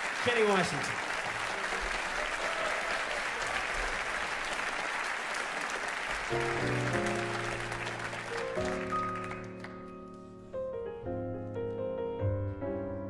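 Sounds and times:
audience applauding: 0.0 - 10.2
piano chords: 6.2 - 13.0.

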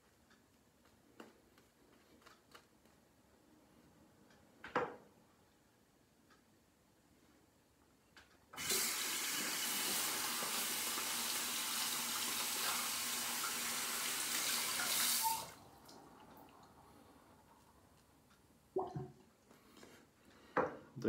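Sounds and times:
tap water running into sink: 8.6 - 16.5.

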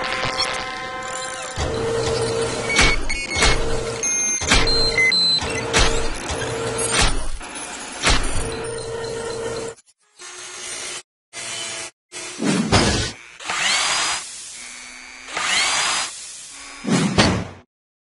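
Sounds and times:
robotic arm clanks: 0.0 - 9.9.

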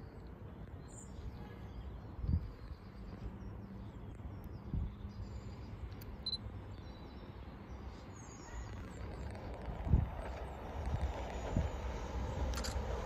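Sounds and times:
faint bird chirps: 0.0 - 9.6
wind rumble on microphone: 2.1 - 3.2, 4.5 - 5.2, 8.6 - 13.0.

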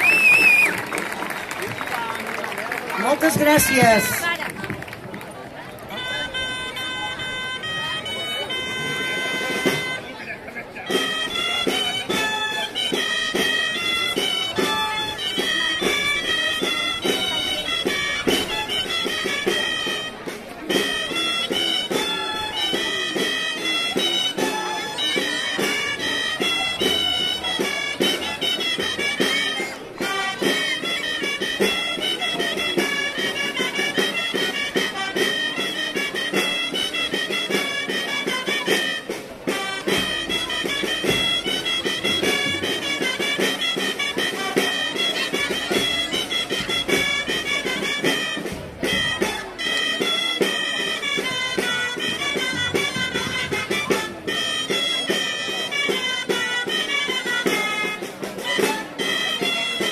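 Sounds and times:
shawms playing dance tune: 3.0 - 4.4
steady drum beat: 3.0 - 4.4, 36.8 - 44.6.

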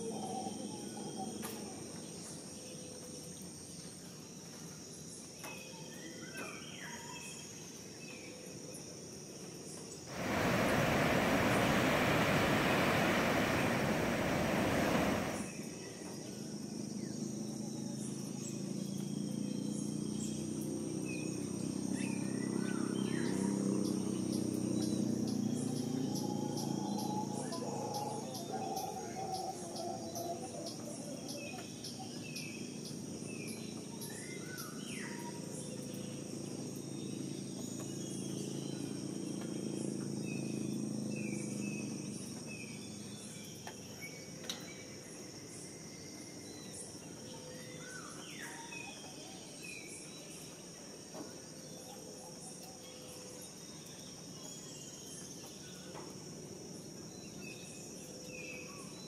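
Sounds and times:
insects trilling: 8.4 - 59.0
low rumble: 10.1 - 15.5.

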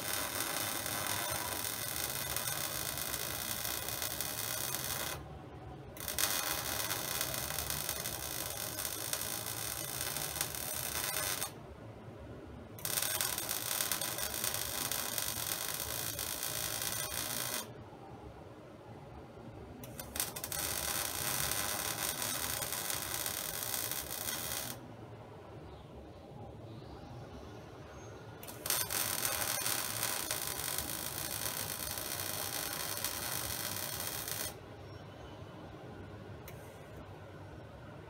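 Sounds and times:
welding arc crackling hiss: 0.0 - 5.2, 6.0 - 11.6, 12.8 - 17.7, 19.8 - 24.8, 28.4 - 34.6.

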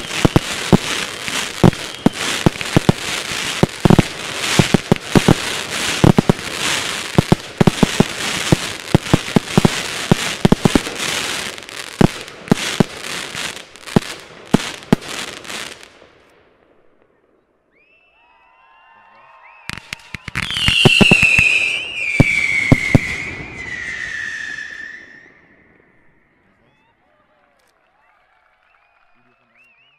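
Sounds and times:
fireworks hiss: 0.0 - 15.0
fireworks crackling and popping: 0.0 - 17.2, 19.6 - 26.2.

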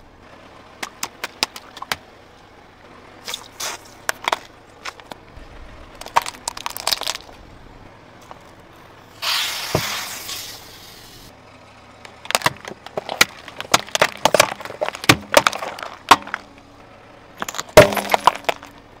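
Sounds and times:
jars cracking under tyre: 0.8 - 2.1, 3.2 - 7.5, 12.0 - 19.0
aerosol hiss: 9.2 - 11.3.

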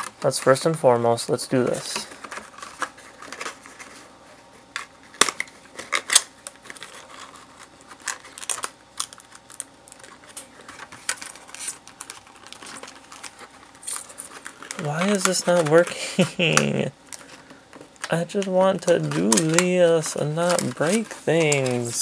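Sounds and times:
cardboard snapping: 4.8 - 7.3.

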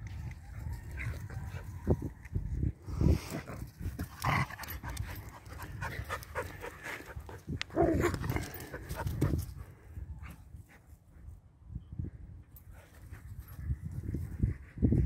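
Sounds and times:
dogs panting: 4.0 - 11.0.

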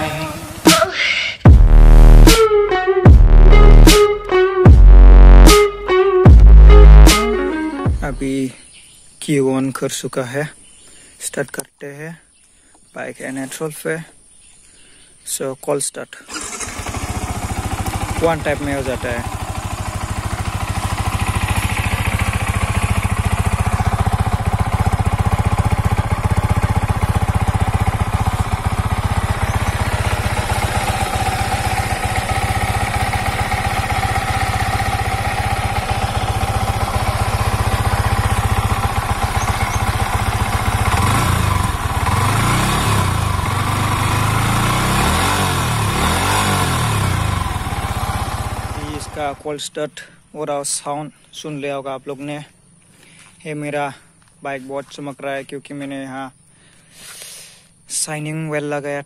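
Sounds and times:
motorcycle engine idling and revving: 0.0 - 8.4, 16.3 - 50.1.

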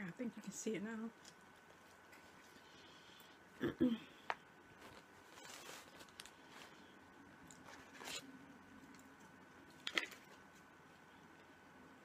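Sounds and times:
plastic container crinkle: 4.8 - 8.3.

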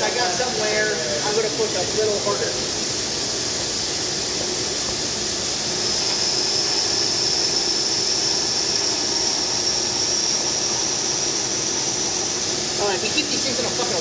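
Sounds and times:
tool grinding hiss with whine: 0.0 - 14.0.

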